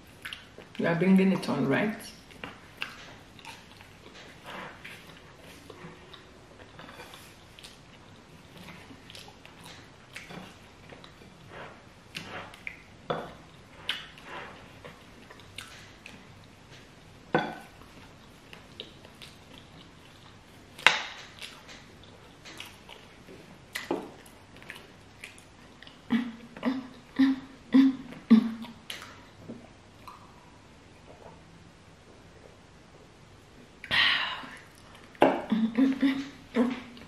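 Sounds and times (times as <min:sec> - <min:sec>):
chewing: 0:00.1 - 0:00.8, 0:02.3 - 0:16.9, 0:17.5 - 0:27.2, 0:30.0 - 0:30.4.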